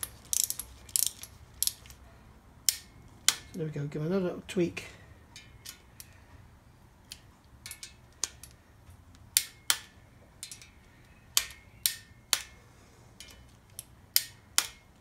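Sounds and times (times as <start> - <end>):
torque wrench clicking: 0.0 - 1.8.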